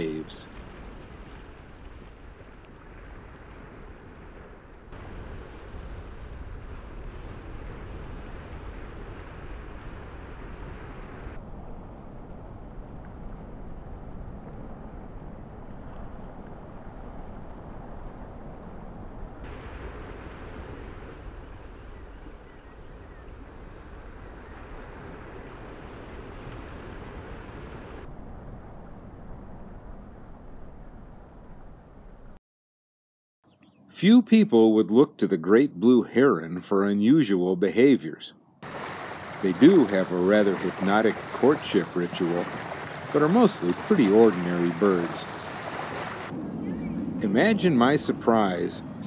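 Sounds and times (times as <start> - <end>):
surf washing over shallow water: 0.0 - 11.4, 19.5 - 28.1, 38.6 - 46.4
wind rumble on microphone: 0.0 - 32.4, 38.6 - 49.0.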